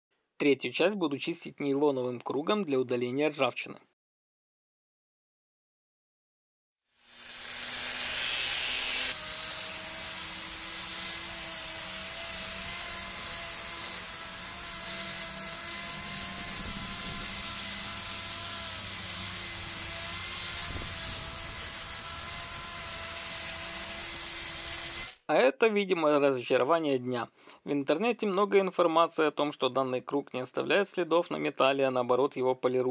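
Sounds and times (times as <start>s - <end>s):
angle grinder motor whine: 7.0s - 25.2s
disc rubbing rust off metal: 7.4s - 25.2s.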